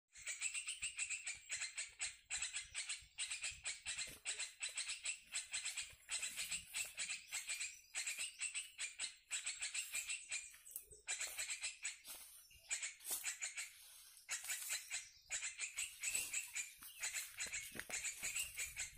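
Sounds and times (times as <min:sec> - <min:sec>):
recorded birds chattering: 0:00.1 - 0:18.9.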